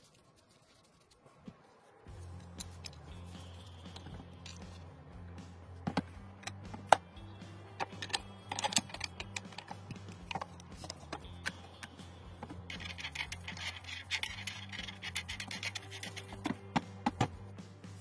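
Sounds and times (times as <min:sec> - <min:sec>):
rifle parts clicking: 0:07.8 - 0:11.6
gritty metal scraping: 0:12.6 - 0:16.4.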